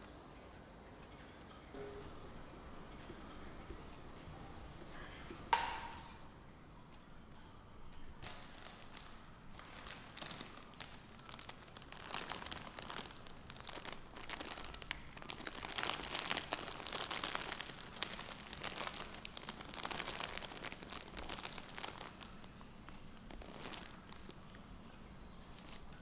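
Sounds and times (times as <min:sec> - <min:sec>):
bouquet wrapping crinkling: 0:08.2 - 0:26.0.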